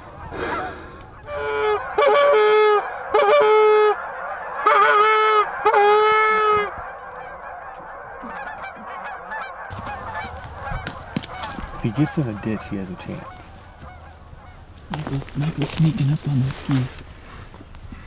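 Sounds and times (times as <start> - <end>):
goose honking: 0.1 - 17.0.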